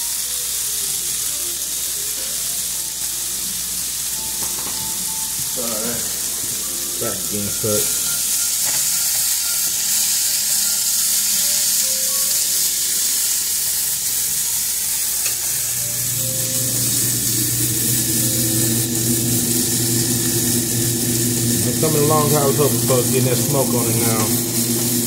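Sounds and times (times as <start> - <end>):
meat sizzling in a pan: 0.0 - 25.0
low hum: 15.3 - 25.0.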